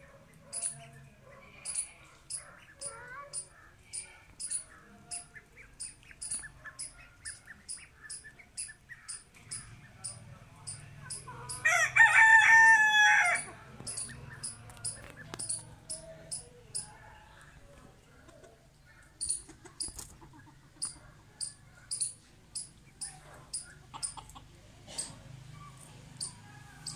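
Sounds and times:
rooster crowing: 11.5s - 13.5s, 26.3s - 26.9s.

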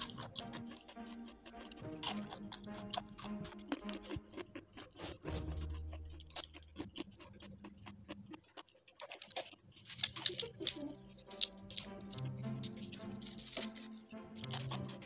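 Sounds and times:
crackers crunching and snapping: 0.0s - 15.0s.

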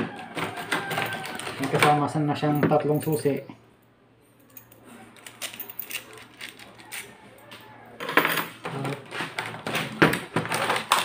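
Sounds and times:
plastic packaging crinkling: 0.2s - 2.1s, 8.8s - 11.0s.

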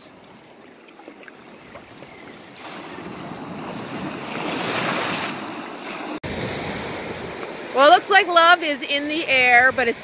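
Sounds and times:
surf washing over sand: 2.6s - 10.0s.

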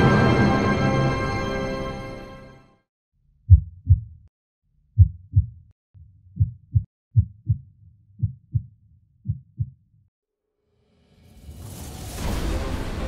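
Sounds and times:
heartbeat thumps: 3.5s - 4.3s, 5.0s - 5.7s, 6.3s - 9.8s.

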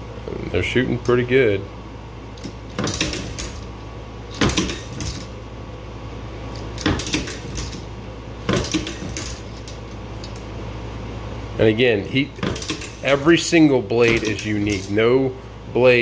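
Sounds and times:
metallic clacks and rattles: 2.4s - 3.6s, 4.4s - 5.4s, 6.8s - 7.9s, 8.5s - 10.4s, 12.4s - 13.2s, 14.0s - 15.0s.

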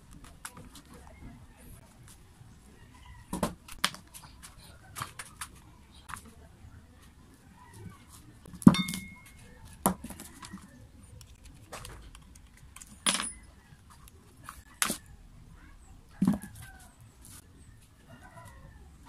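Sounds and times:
metal parts knocking and clinking: 8.6s - 9.4s, 12.3s - 13.6s.

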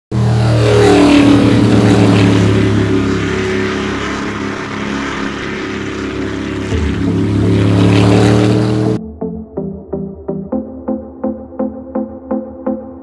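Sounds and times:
motorboat engine running: 0.1s - 9.2s.

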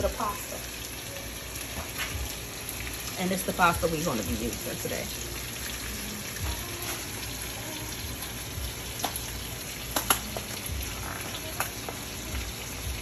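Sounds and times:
sausages frying in oil: 0.0s - 13.0s
water boiling in a pot: 0.0s - 13.0s.

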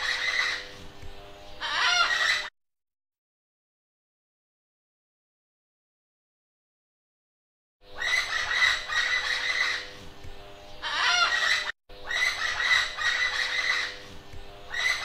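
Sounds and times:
birds clucking and squawking: 0.0s - 0.8s, 1.6s - 2.5s, 7.9s - 10.0s, 10.8s - 15.0s.

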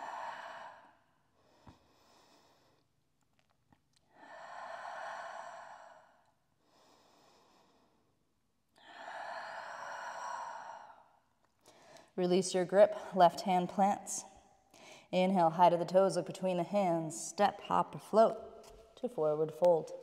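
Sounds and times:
woman breathing: 0.0s - 3.0s, 4.0s - 12.2s, 14.6s - 15.1s.

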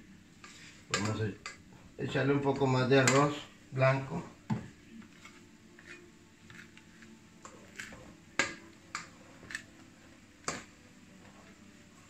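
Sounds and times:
spatula scraping frying pan: 0.4s - 1.2s.

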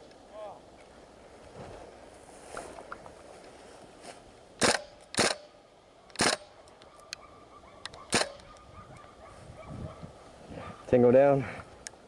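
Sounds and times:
airsoft rifle shots: 4.6s - 5.5s, 6.1s - 6.5s, 8.1s - 8.5s.

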